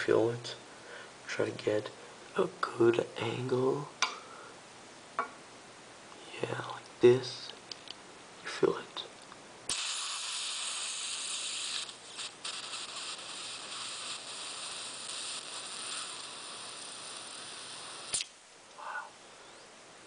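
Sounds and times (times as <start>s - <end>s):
butane gas hissing: 9.7s - 18.3s.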